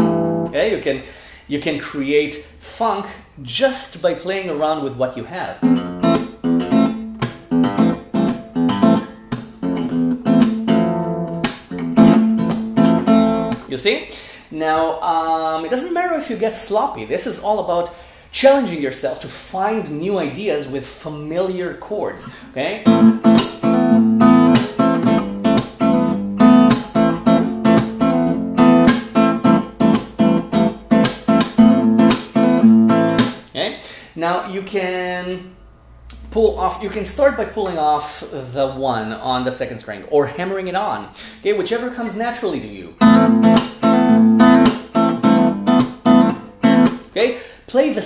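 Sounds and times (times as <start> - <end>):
fingerstyle acoustic guitar: 0.0 - 0.5, 5.6 - 13.7, 22.8 - 33.4, 43.0 - 47.0.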